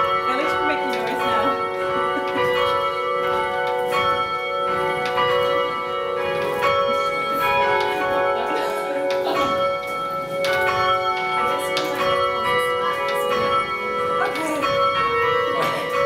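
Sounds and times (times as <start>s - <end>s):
church bells pealing: 0.0s - 16.0s.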